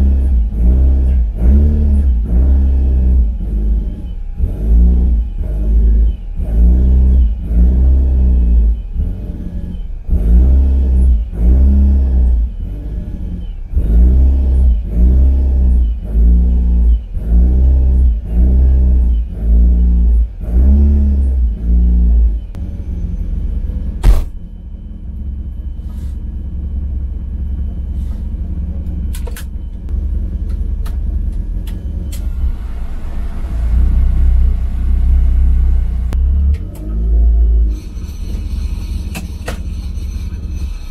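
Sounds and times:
car engine idling: 0.0 - 40.9
car engine revving: 0.0 - 40.9
sharp click: 24.0 - 24.4, 29.1 - 29.6.

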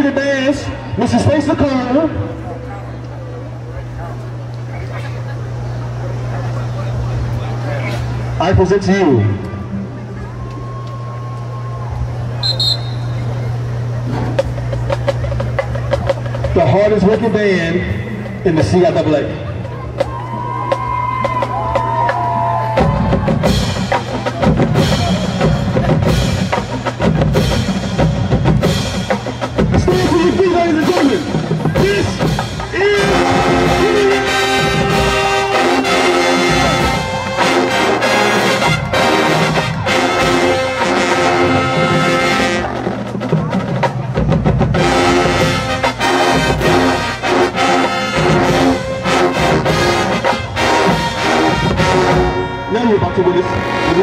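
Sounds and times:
brass section playing chords: 12.4 - 14.0, 23.0 - 54.0
bass and snare drums: 12.4 - 17.6, 18.2 - 52.4.

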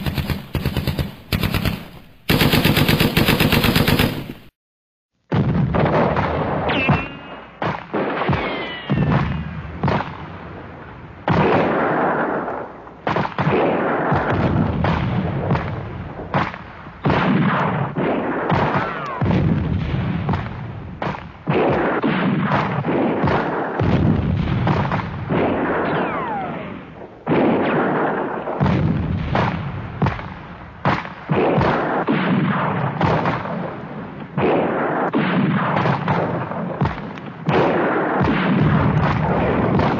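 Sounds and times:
gunfire and explosions: 0.0 - 4.5, 5.2 - 39.9
falling whistles: 8.4 - 9.2.

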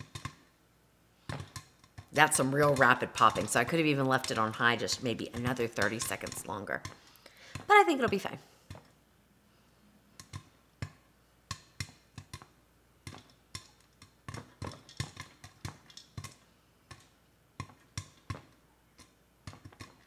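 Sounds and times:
popcorn popping: 0.0 - 0.6, 1.2 - 8.9, 10.1 - 20.0.

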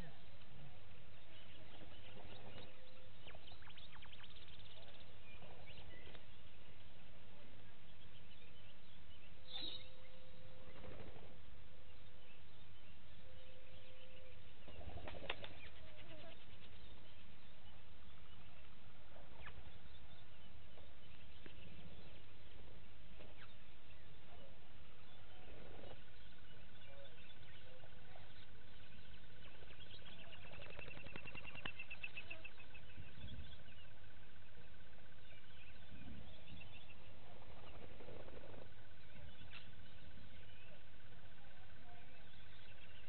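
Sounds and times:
long steady high tone: 0.0 - 30.6
bird chirps: 0.0 - 43.0
bird hooting: 0.0 - 43.0
fast bird trill: 1.3 - 6.1.

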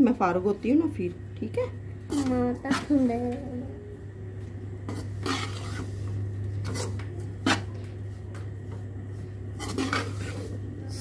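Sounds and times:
metal spoon scraping in a pan: 2.0 - 2.9, 4.8 - 7.8, 9.5 - 11.0.

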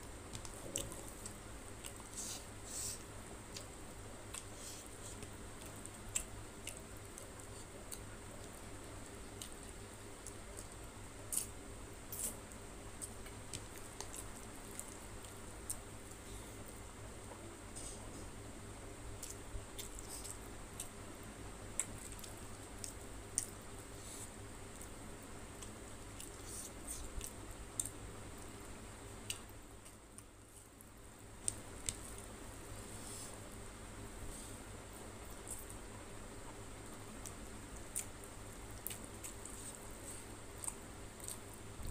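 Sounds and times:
faint low hum: 0.0 - 41.9.

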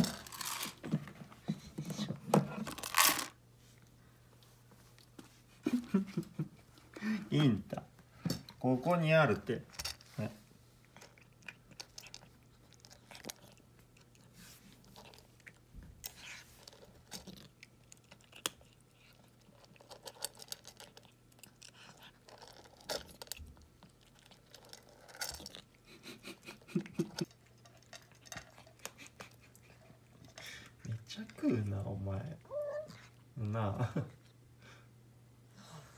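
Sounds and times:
cat crunching dry kibble: 0.0 - 0.9, 2.5 - 3.4, 10.8 - 32.0.

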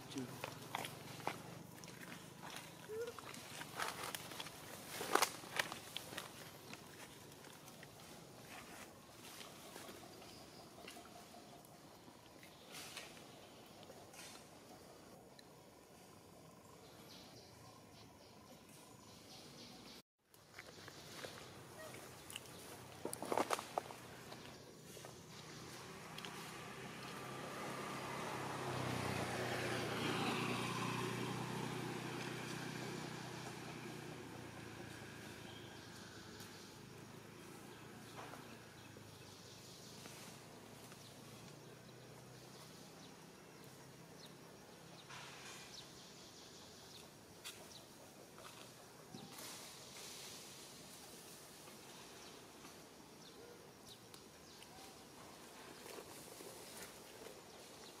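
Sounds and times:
vehicle engine passing by: 24.0 - 47.0.

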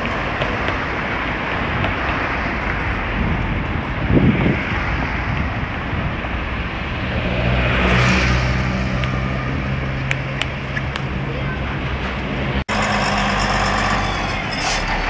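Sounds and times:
tyre and wind noise: 0.0 - 12.7
car passing close: 0.0 - 15.0.

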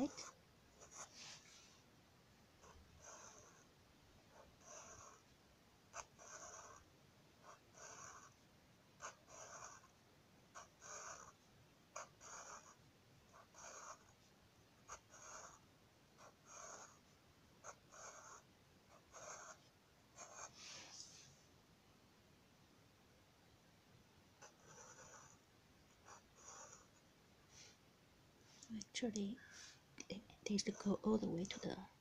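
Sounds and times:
marker drawing on paper: 0.0 - 1.6, 4.3 - 5.3, 5.9 - 8.4, 9.0 - 10.0, 10.6 - 11.4, 12.0 - 15.6, 16.2 - 17.0, 17.6 - 21.3, 24.4 - 27.0.

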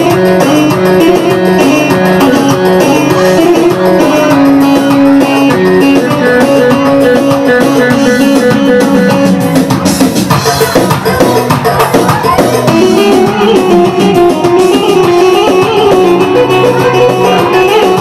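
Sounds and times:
drums: 0.0 - 18.0
plucked string melody: 0.0 - 18.0.

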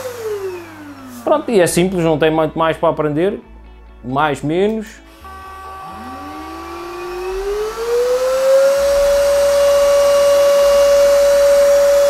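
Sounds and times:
vacuum motor whine: 0.0 - 2.1, 5.0 - 12.0.

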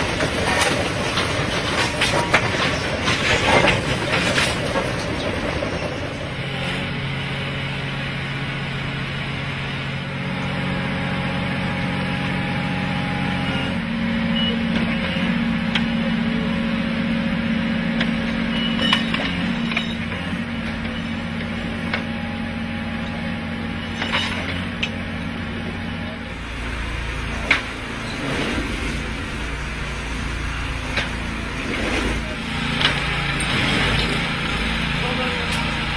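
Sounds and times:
machine engine running: 0.0 - 35.9.

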